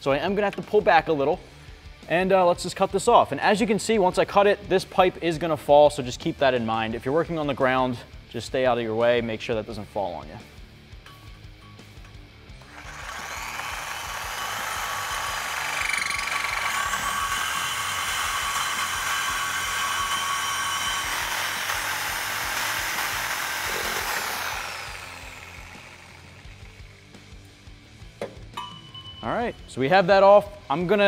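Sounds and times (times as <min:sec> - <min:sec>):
reciprocating saw cutting metal pipe: 0:12.6 - 0:27.2.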